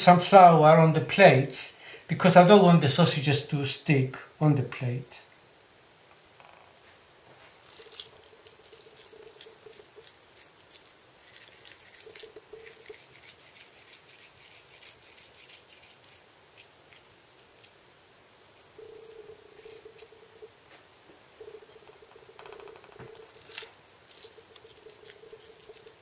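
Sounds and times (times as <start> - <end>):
hands rolling wet meat mixture: 7.4 - 26.0.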